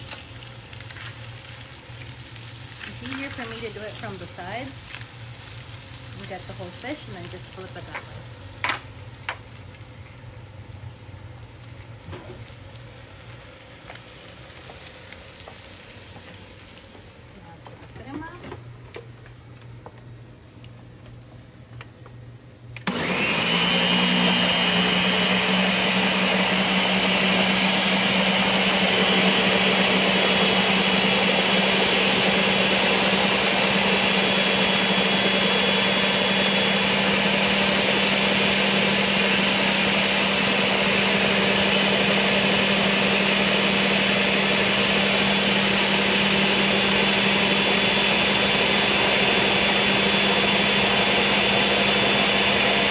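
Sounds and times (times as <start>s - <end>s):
blender running: 2.8s - 4.8s, 22.8s - 52.9s.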